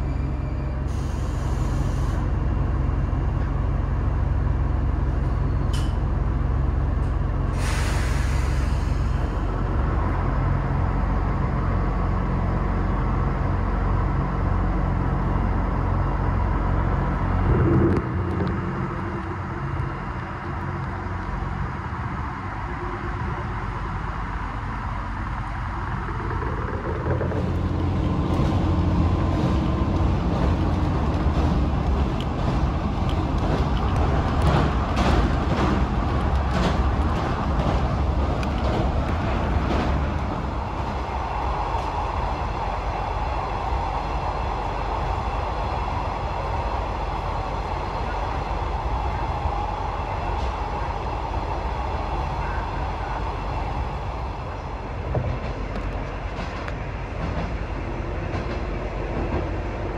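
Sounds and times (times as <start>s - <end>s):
diesel engine hum: 0.0s - 59.9s
train wheels rumbling on rails: 0.0s - 59.9s
rail-joint clicks: 5.2s - 6.1s, 25.8s - 42.2s, 54.5s - 59.9s.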